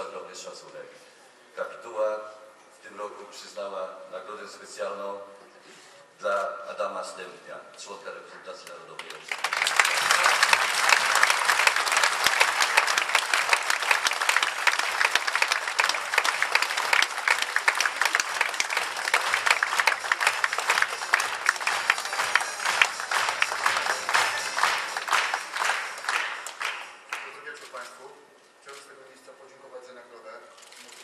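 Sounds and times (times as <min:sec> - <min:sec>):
audience applauding: 0:09.0 - 0:27.4
faint music: 0:17.8 - 0:31.0.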